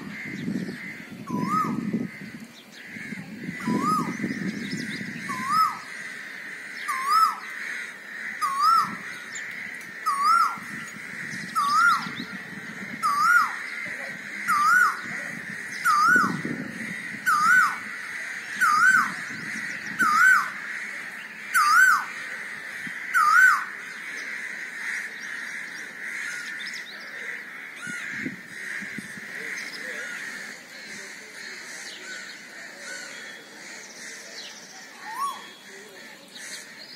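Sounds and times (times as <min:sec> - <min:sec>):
bird whistled call: 0:01.3 - 0:01.8, 0:03.6 - 0:04.2, 0:05.3 - 0:05.8, 0:06.9 - 0:07.4, 0:08.4 - 0:08.9, 0:10.1 - 0:10.6, 0:11.6 - 0:12.1, 0:13.0 - 0:13.6, 0:15.9 - 0:16.4, 0:35.0 - 0:35.7.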